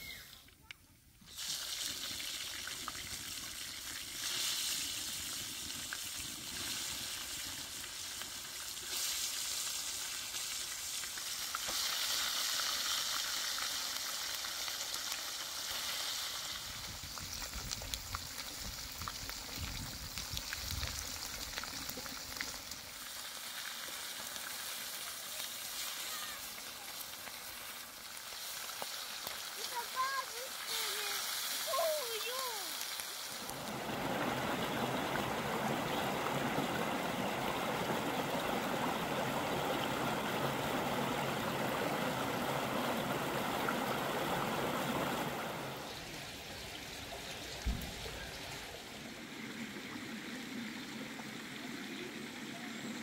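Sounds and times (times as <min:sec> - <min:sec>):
fish frying in hot oil: 0:01.3 - 0:40.8.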